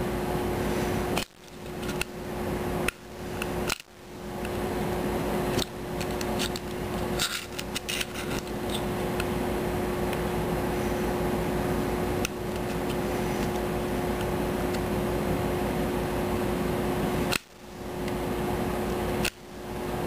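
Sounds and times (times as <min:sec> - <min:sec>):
steady hum: 0:00.0 - 0:20.0
metal tool clicking and scraping: 0:05.6 - 0:08.9.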